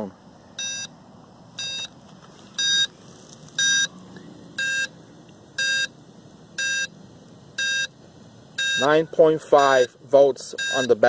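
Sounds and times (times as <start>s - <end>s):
short high electronic beeps: 1.6s - 1.9s, 2.6s - 2.9s.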